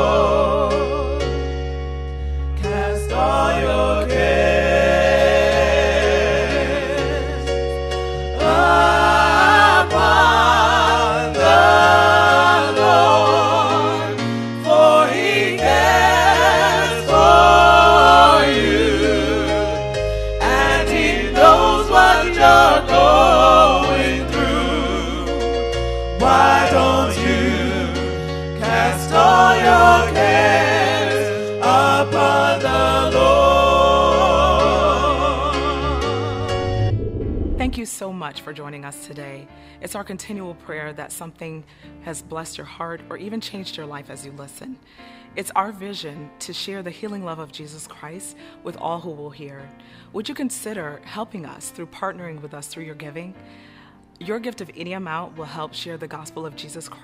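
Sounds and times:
gospel singing with vibrato: 0.0s - 37.8s
bass line: 32.7s - 37.8s.

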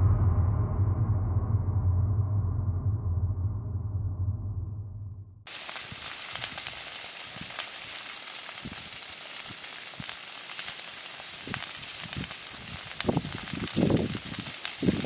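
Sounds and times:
brush fire crackling and popping: 5.5s - 15.0s.

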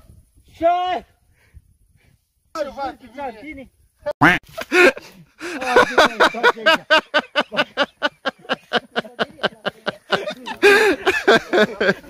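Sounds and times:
people laughing: 4.6s - 12.0s.

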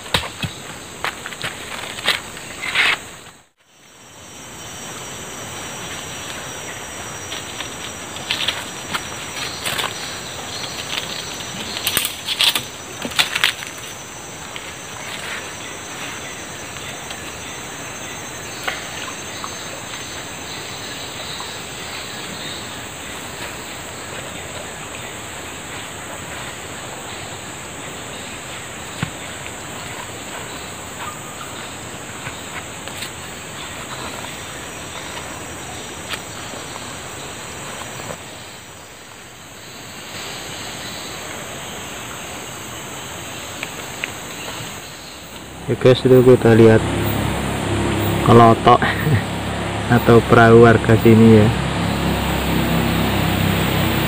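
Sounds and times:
insects droning: 0.0s - 54.0s
river flowing: 39.9s - 54.0s.

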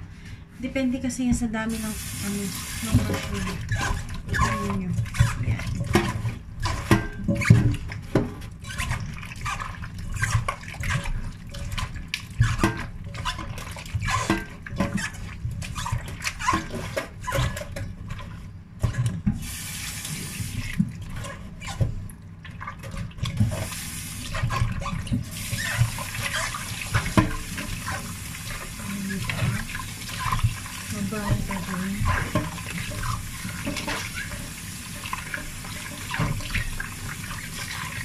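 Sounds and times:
hands squelching mushrooms in water: 1.7s - 19.2s, 20.2s - 38.0s
tap running into bowl: 24.3s - 37.4s.

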